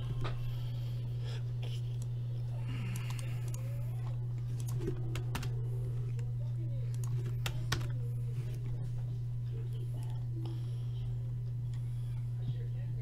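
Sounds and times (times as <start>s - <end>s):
steady low hum: 0.0s - 13.0s
computer keyboard typing: 4.5s - 5.6s, 6.9s - 8.0s.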